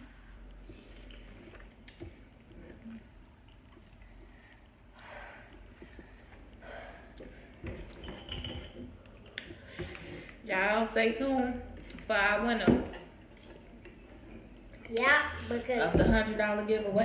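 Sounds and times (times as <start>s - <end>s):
noodles slurped and chewed: 0.1s - 8.0s.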